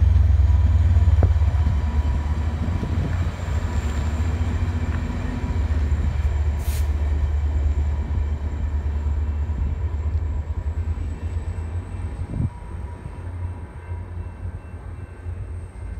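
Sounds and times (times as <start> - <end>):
diesel train rumbling: 0.0 - 15.9
short hiss: 6.6 - 7.0.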